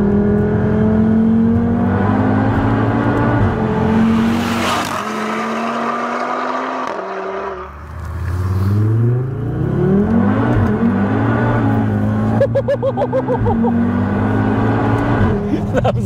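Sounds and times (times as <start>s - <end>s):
car engine accelerating hard: 0.0s - 16.0s
person laughing: 12.3s - 13.9s, 15.4s - 16.0s.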